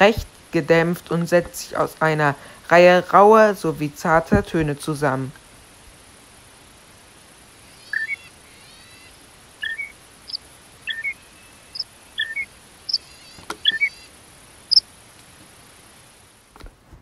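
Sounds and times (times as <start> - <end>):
faint high hiss: 0.0 - 17.0
shrike singing: 7.7 - 14.1.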